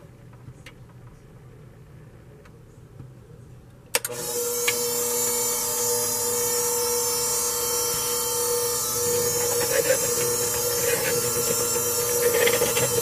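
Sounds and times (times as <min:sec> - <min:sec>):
electric hand mixer whine: 0:04.1 - 0:13.0.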